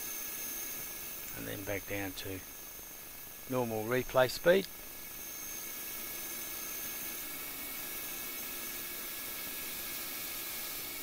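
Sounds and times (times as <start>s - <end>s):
machine whine: 0.0s - 11.0s
lathe cutting hiss: 3.1s - 11.0s.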